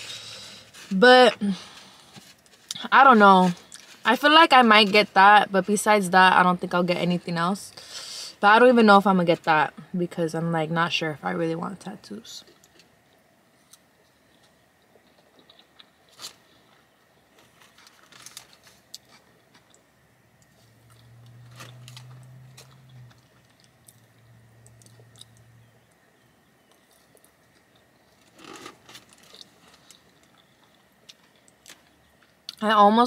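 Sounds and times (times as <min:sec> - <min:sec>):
low steady hum: 0:00.0 - 0:33.0
person chewing food: 0:12.6 - 0:25.8, 0:26.6 - 0:32.6.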